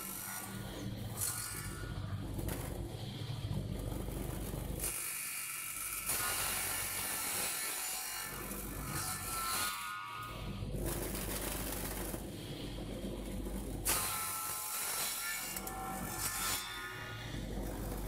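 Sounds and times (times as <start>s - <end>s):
circular saw cutting wood: 0.0s - 2.0s, 4.8s - 10.6s, 13.8s - 17.6s.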